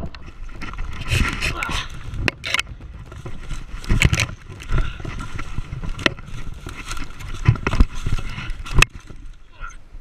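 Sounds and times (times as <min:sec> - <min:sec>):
camera knocks and rumble: 0:02.1 - 0:09.2.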